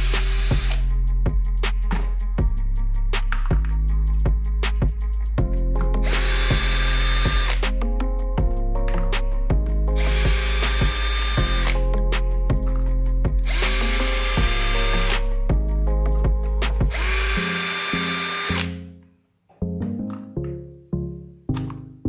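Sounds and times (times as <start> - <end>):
cordless drill whining: 0.0 - 0.9, 6.0 - 7.7, 10.0 - 11.8, 13.5 - 15.2, 16.9 - 18.8
background music with steady beat: 0.0 - 19.0, 19.6 - 22.0.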